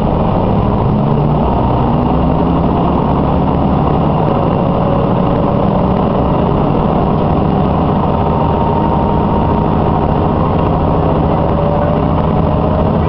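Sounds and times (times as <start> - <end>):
faint held whine: 0.0 - 13.0
railcar engine drone: 0.0 - 13.0.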